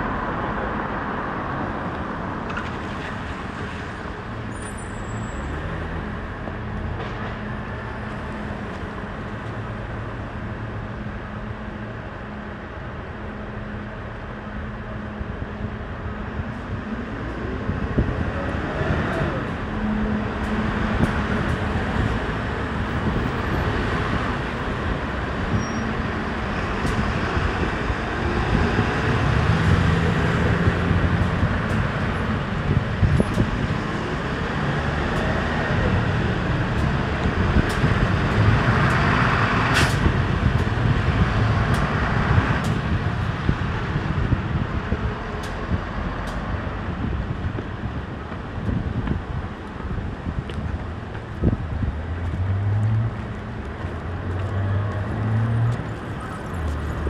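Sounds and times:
trucks and vans passing: 0:00.0 - 0:57.0.

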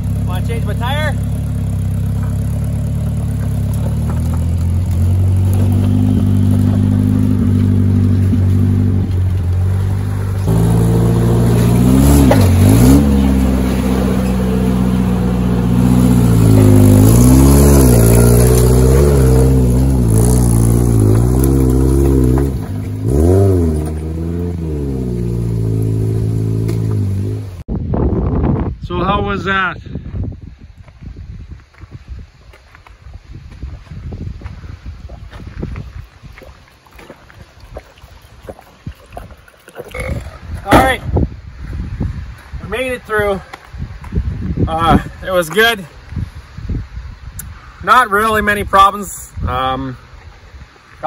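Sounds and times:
pickup truck engine revving: 0:00.0 - 0:27.6.

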